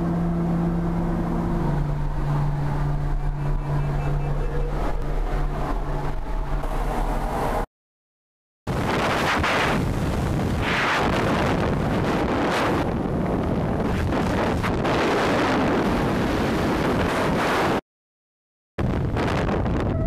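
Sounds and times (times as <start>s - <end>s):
freefall wind buffeting microphone: 8.7s - 17.8s, 18.8s - 20.0s.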